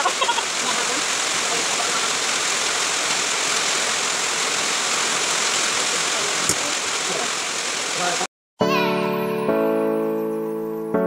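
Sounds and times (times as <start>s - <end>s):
heavy rain on metal roof: 0.0s - 8.3s.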